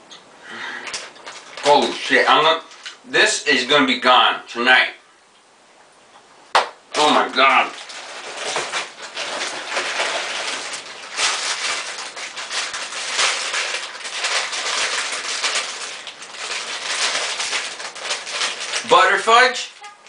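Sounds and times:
plastic bag and cellophane rustling: 0.6s - 3.0s, 6.9s - 20.0s.

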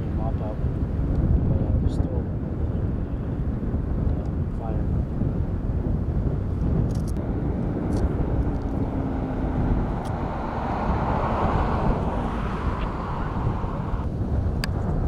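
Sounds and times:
low engine rumble: 0.0s - 15.0s
wind buffeting microphone: 0.0s - 15.0s.

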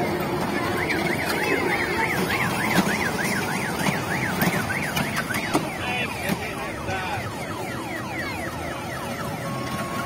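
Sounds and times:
steady background noise: 0.0s - 10.0s
electronic siren warbling: 0.4s - 10.0s.

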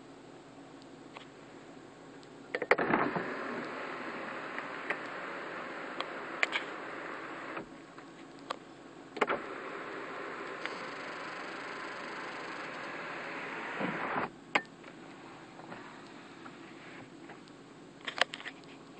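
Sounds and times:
sunroof motor running: 2.8s - 7.9s, 9.2s - 16.9s.

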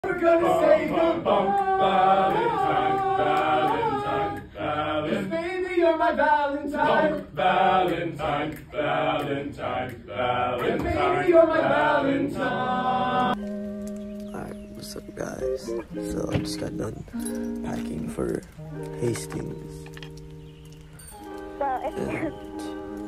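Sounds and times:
male voices singing a cappella: 0.0s - 13.4s.

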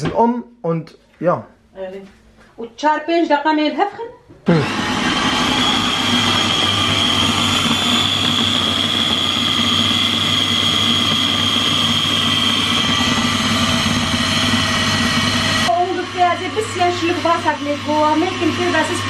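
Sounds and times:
blender motor whining: 4.5s - 19.0s.

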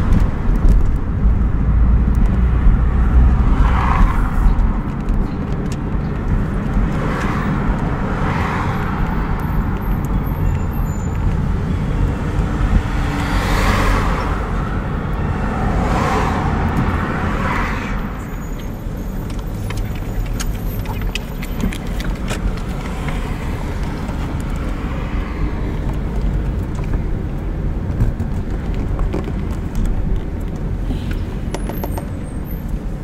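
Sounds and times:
car road and engine rumble: 0.0s - 33.0s
road hiss: 30.8s - 31.5s.

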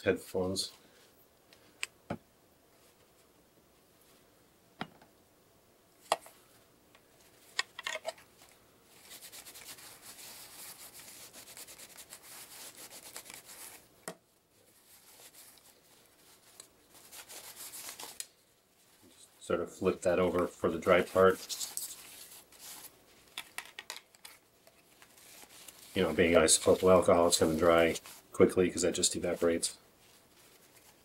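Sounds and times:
paper towel wiping plastic: 8.9s - 13.9s, 14.5s - 23.4s, 24.2s - 31.0s.

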